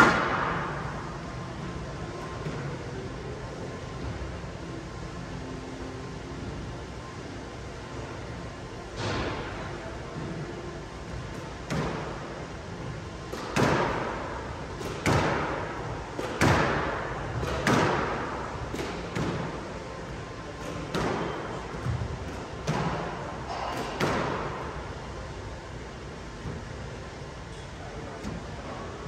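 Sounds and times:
squash ball hitting racket and walls: 0.0 - 3.0, 8.9 - 25.4.

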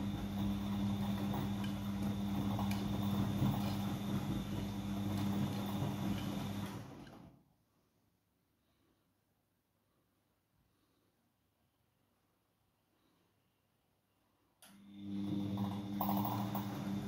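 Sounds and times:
washing machine tumbling laundry: 0.0 - 7.5, 14.8 - 17.0.

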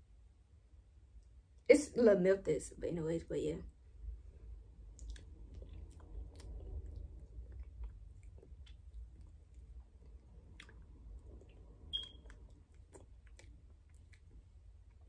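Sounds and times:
low steady hum: 0.0 - 15.0
mouth sounds of eating: 4.2 - 15.0
brief high squeak: 11.9 - 12.2.

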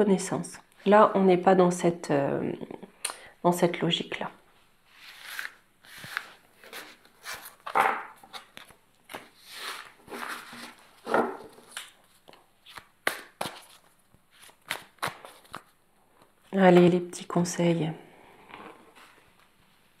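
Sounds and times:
cards shuffled by hand: 5.0 - 16.3.

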